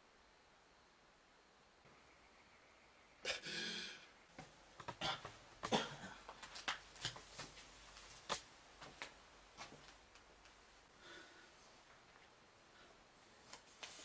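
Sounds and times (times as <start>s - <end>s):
clothing rustling: 6.3s - 10.8s, 13.3s - 14.0s.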